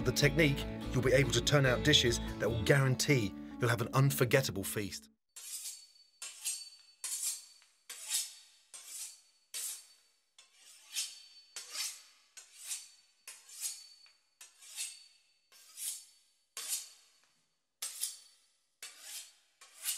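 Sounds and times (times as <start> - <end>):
metallic scraping strokes: 5.4 - 17.1, 17.8 - 19.9.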